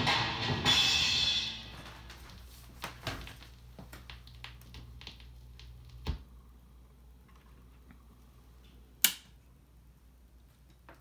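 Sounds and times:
low steady hum: 0.0s - 11.0s
vinyl crackles and pops: 1.7s - 9.4s.

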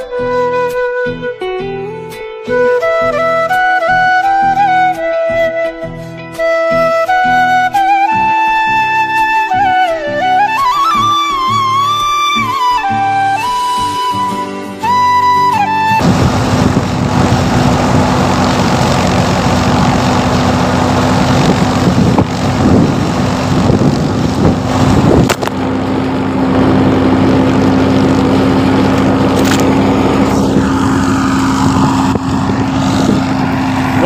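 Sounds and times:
thresher machine droning: 15.9s - 34.0s
wind buffeting microphone: 15.9s - 34.0s.

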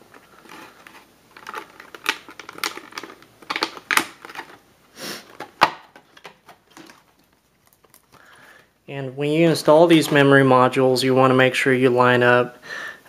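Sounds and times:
plastic packaging clicking and crackling: 0.0s - 8.7s.

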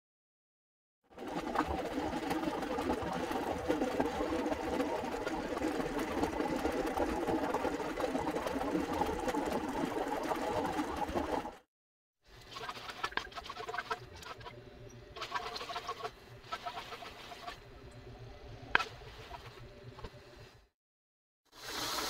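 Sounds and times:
water bubbling: 1.1s - 11.6s
eggs rattling in a metal pot: 12.4s - 14.5s, 15.2s - 17.6s.

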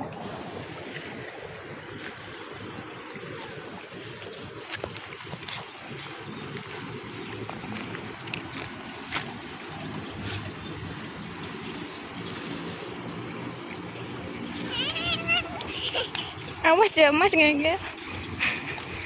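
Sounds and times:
water rushing along a channel: 0.0s - 19.0s.

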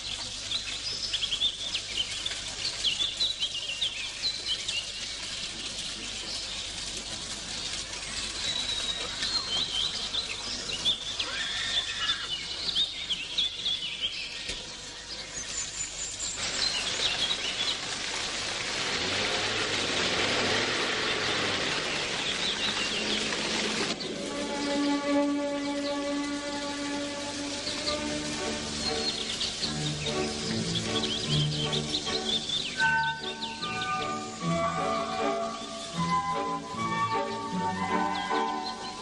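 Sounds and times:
woodland birds singing: 0.0s - 39.0s
sustained music notes: 24.0s - 39.0s.

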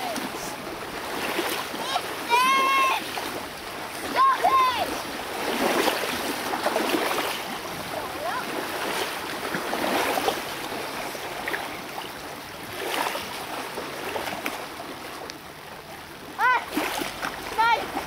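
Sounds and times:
water splashing and sloshing: 0.0s - 18.0s.

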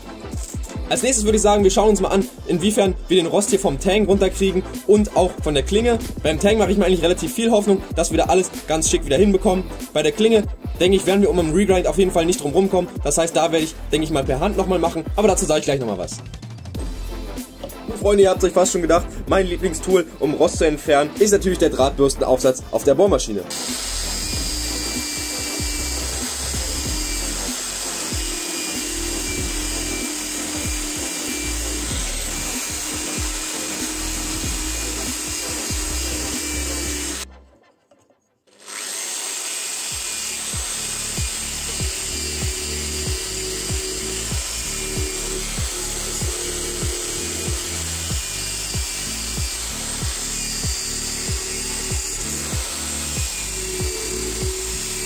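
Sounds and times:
drill motor whine: 23.4s - 37.3s, 38.5s - 55.0s
wire brush scrubbing metal: 23.4s - 37.3s, 38.5s - 55.0s.

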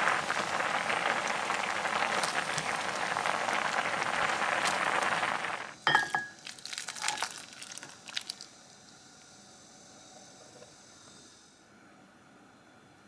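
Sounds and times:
pan clinking against plate: 5.9s - 6.4s.

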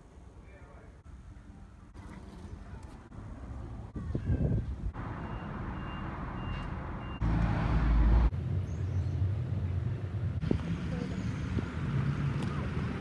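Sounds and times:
street traffic: 0.0s - 13.0s
reversing alarm beeps: 5.2s - 7.2s.

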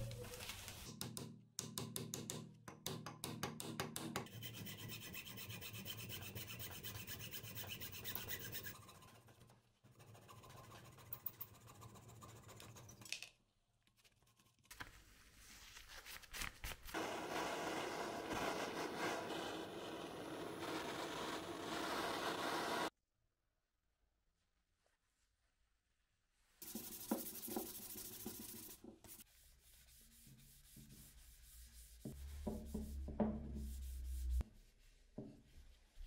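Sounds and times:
sanding wood by hand: 4.3s - 8.8s, 26.6s - 35.0s.

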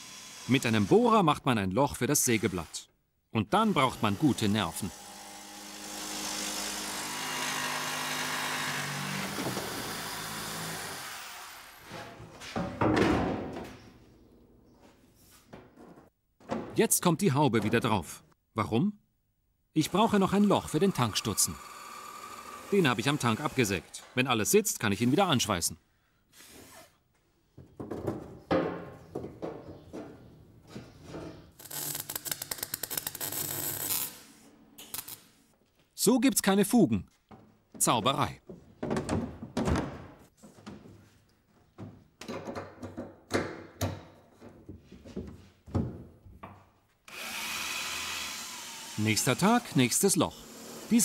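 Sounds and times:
electric jigsaw buzzing: 0.0s - 0.9s, 4.0s - 11.8s, 19.9s - 23.8s, 47.1s - 51.0s
knocks and thumps of panel handling: 15.5s - 16.8s, 38.5s - 41.0s, 41.8s - 46.6s
wire welder crackling: 31.6s - 34.2s, 34.8s - 35.3s.

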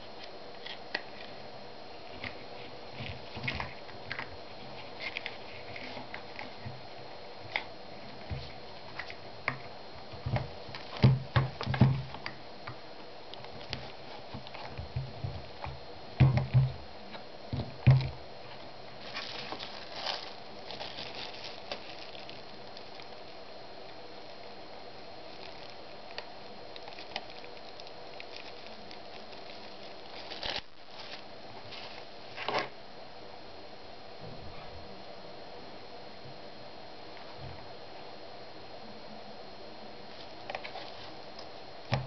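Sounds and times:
plastic bag crinkling: 19.0s - 23.3s, 25.2s - 32.6s.

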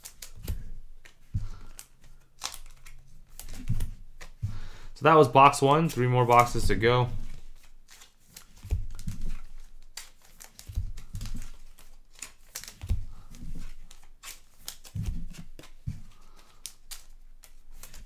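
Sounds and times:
cards clicking and rustling: 0.0s - 18.0s.

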